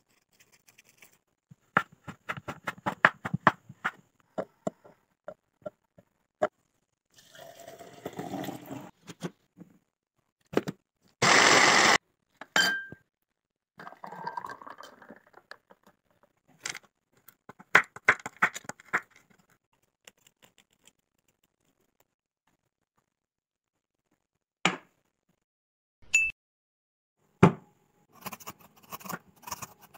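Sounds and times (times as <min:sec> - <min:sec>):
knife chopping on cutting board: 0:01.7 - 0:04.0
liquid pouring into glass: 0:07.2 - 0:08.9, 0:13.8 - 0:15.4
liquid pouring into plastic cup: 0:07.2 - 0:08.9, 0:13.8 - 0:15.5.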